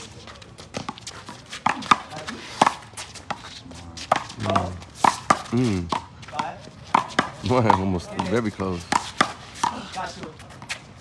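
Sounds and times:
handball slapping: 4.1 - 9.8.

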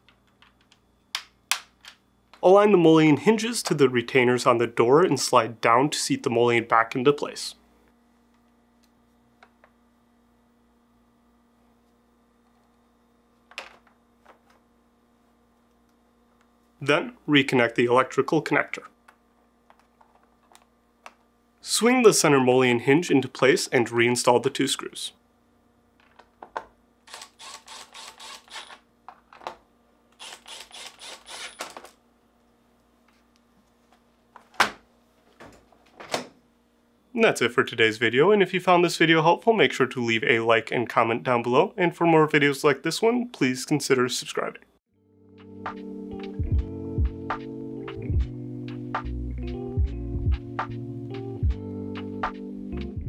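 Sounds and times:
cordless driver bursts: 27.1 - 28.8, 30.2 - 31.8.

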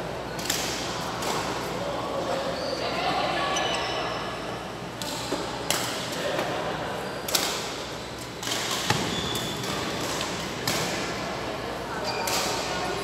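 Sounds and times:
rackets striking shuttlecock: 7.3 - 11.1.

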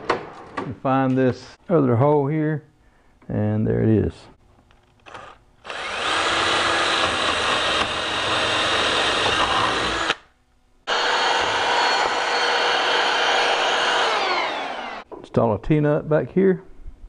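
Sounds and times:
cordless drill boring into wood: 5.0 - 10.2, 10.9 - 15.1.

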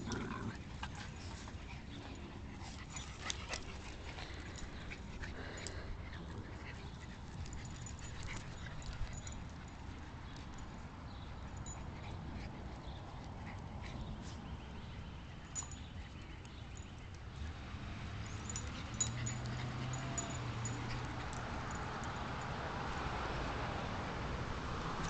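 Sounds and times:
small dogs vocalizing: 18.5 - 21.8.

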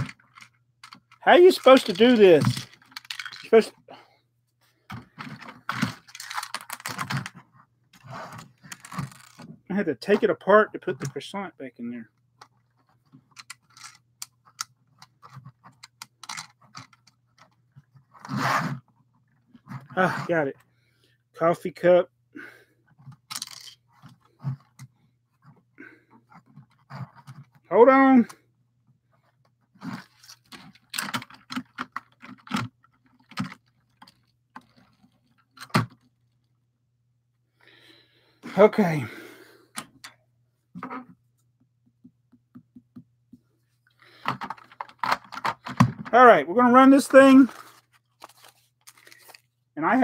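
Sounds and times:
plastic bricks clicking: 0.0 - 3.6, 5.4 - 7.4, 13.3 - 15.1, 23.3 - 23.8.

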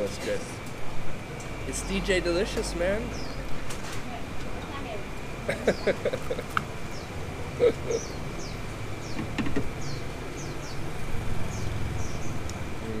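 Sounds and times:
low traffic rumble: 0.0 - 13.0
bird chirping: 1.7 - 3.6, 5.5 - 12.5.

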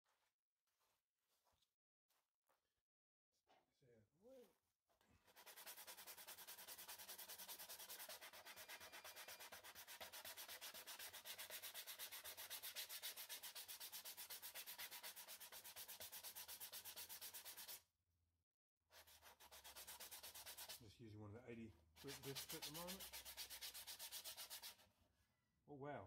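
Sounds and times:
sanding disc rasping on wood: 5.3 - 17.8, 19.0 - 20.8, 22.0 - 24.8.

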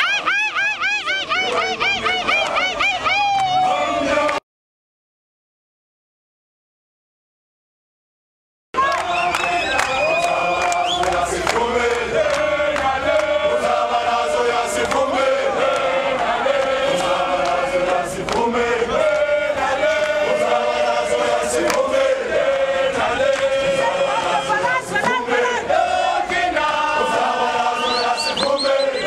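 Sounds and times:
crowd singing a chant: 3.6 - 4.4, 8.8 - 29.0.

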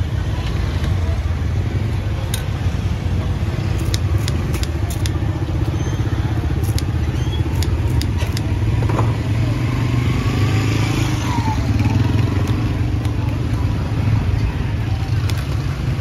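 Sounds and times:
street market noise: 0.0 - 16.0
small motorbike engine running: 3.6 - 14.0
sharp clicks: 3.7 - 5.8, 6.6 - 8.7, 15.2 - 15.6.

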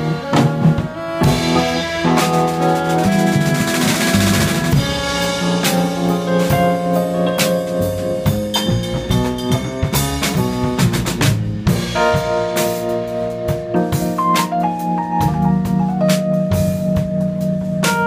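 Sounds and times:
saxophone: 0.0 - 7.3
trumpet: 0.0 - 11.3
drum kit: 0.0 - 18.0.

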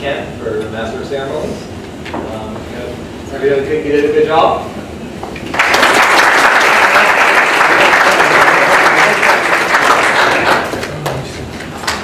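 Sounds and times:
people applauding: 5.5 - 12.0.

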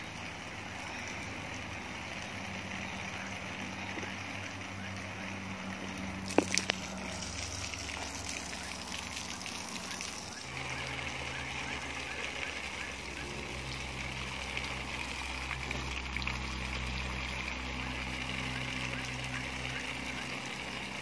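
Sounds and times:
steady low hum: 0.0 - 21.0
hose water splashing on rocks: 5.9 - 21.0.

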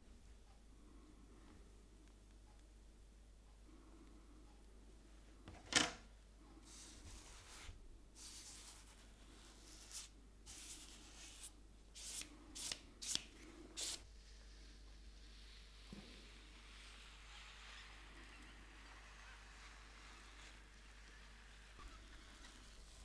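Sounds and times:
paper swishing strokes: 6.7 - 14.0.

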